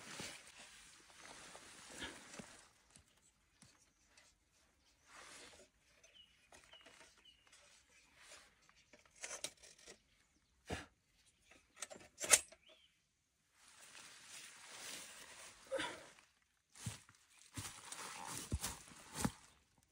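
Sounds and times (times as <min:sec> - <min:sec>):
rustling and handling noises: 0:13.6 - 0:19.8.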